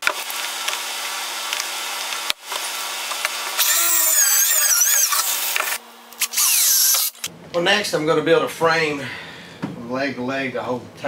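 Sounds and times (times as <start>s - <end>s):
cordless drill driving screw: 3.6s - 7.3s.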